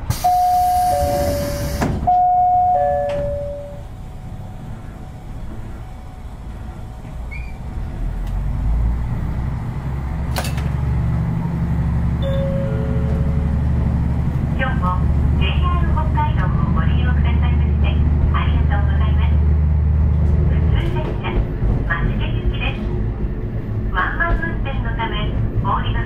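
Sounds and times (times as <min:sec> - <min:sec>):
doors closing with air hiss: 0:00.0 - 0:02.2
diesel engine rumble: 0:00.0 - 0:26.0
descending two-note chime: 0:02.1 - 0:03.9, 0:12.2 - 0:13.7.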